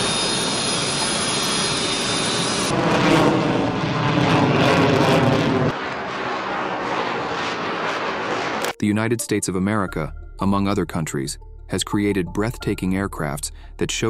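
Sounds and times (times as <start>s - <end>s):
jet engine in flight: 0.0s - 8.8s
jet engine rush with high whine: 0.0s - 8.8s.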